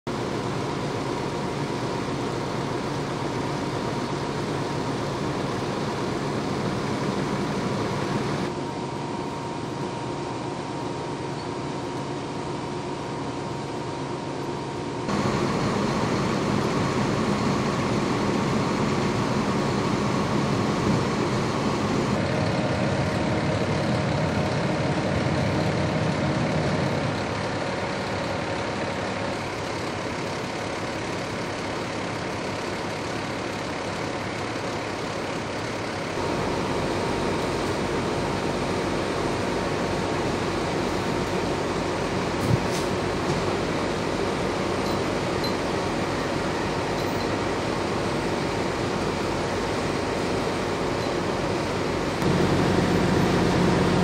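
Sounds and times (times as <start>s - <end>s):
heavy vehicle engines idling: 0.1s - 54.0s.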